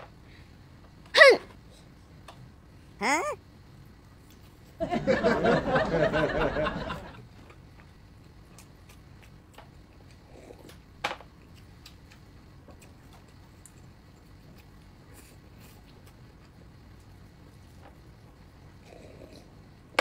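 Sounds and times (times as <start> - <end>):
person laughing: 3.0 - 3.4, 4.9 - 7.2.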